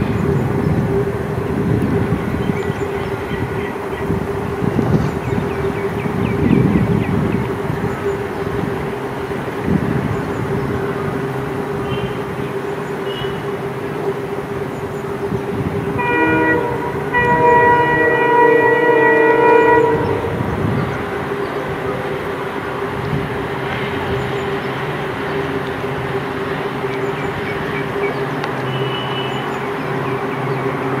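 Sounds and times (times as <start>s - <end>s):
diesel locomotive engine hum: 0.0s - 31.0s
rail noise: 0.0s - 31.0s
multi-tone locomotive horn: 11.0s - 14.4s, 15.5s - 23.3s, 27.1s - 31.0s.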